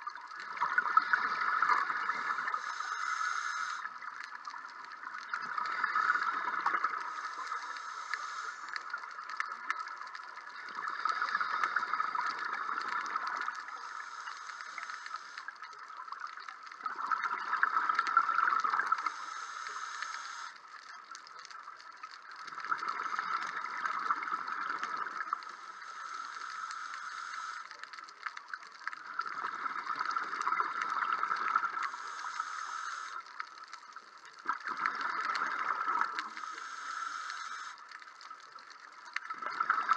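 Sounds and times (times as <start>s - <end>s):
exhaled bubbles rushing: 0.0s - 2.5s, 22.4s - 25.4s, 34.4s - 36.3s, 39.2s - 39.9s
regulator steady hiss: 0.5s - 17.0s, 17.7s - 34.0s, 34.7s - 39.1s.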